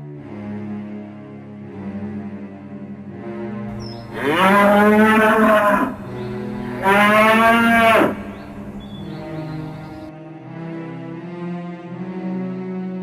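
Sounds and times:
cow mooing: 3.7s - 9.8s.

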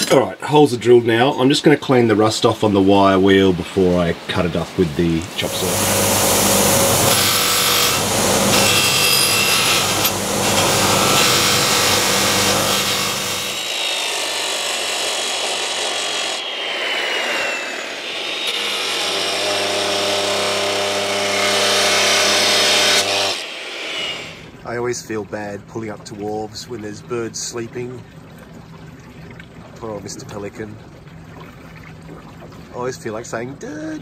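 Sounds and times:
wire wheel scrubbing rust off steel: 5.4s - 16.5s
chop saw cutting steel: 5.4s - 24.5s
grinder motor humming: 5.4s - 24.5s.

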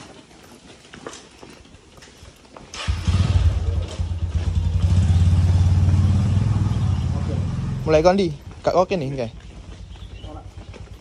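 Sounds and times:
motorcycle engine running: 2.8s - 11.0s.

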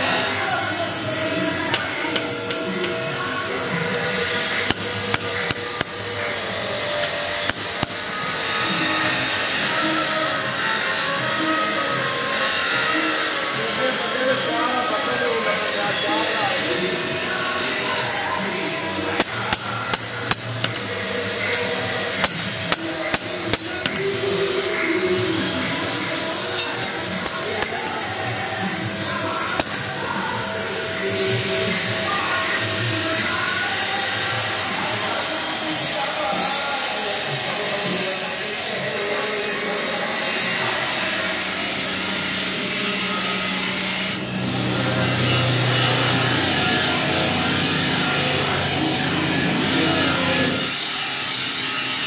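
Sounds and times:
grinding wheel grinding steel blade: 0.0s - 52.0s
hammer striking metal on anvil: 4.6s - 6.2s, 7.0s - 8.2s, 19.2s - 24.2s, 26.1s - 30.4s.

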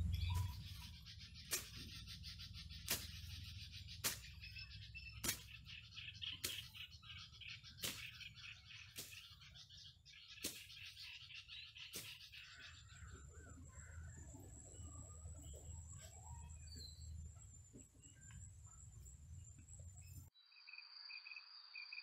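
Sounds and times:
birds and insects chirping: 0.0s - 22.0s
sharp blade strokes: 2.8s - 3.3s.

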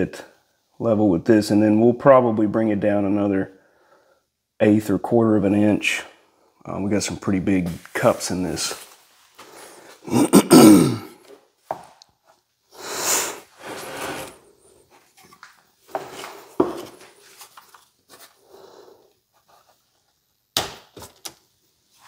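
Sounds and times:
wooden sled scraping with creak: 13.6s - 14.4s.

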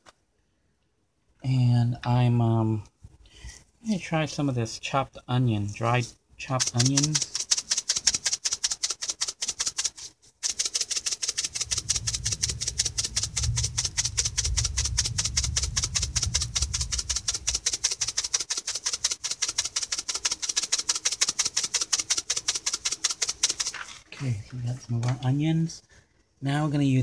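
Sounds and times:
spice shaker rattling: 5.8s - 25.2s.

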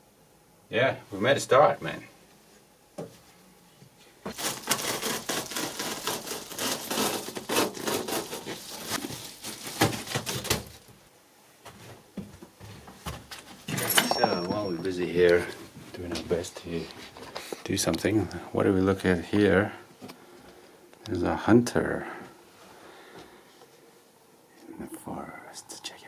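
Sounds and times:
foil insulation crinkling: 4.3s - 11.1s.

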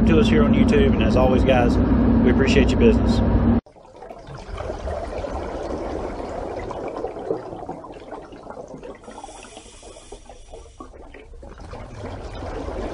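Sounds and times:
running water: 3.7s - 12.9s.

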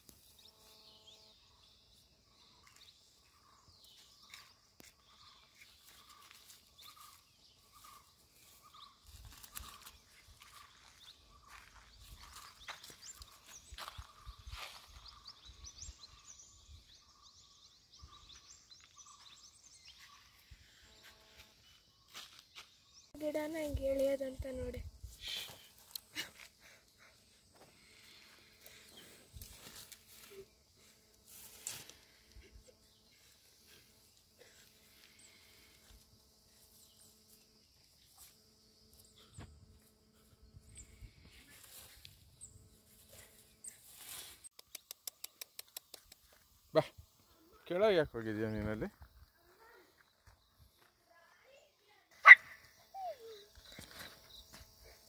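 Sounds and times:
birds chirping: 0.2s - 43.9s.

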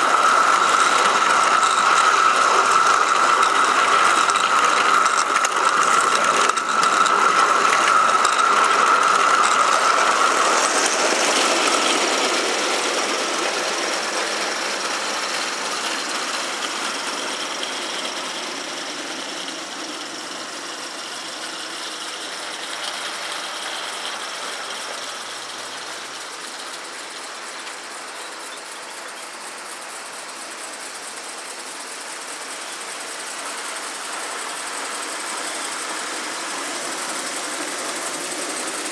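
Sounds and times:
mechanical whirring with high whine: 0.0s - 30.2s.

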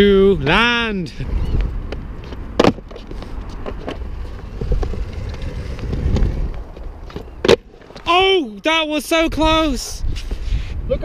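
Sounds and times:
skateboard wheels rolling: 1.2s - 9.1s.

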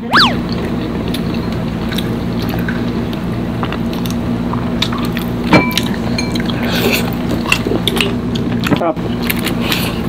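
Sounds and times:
low hum: 0.0s - 1.1s.

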